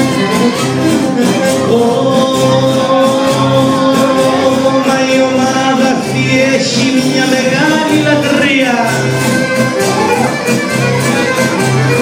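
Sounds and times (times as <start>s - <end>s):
folk dance music: 0.0s - 12.0s
pulsing bass beat: 0.0s - 12.0s
bowed fiddle melody: 7.2s - 12.0s.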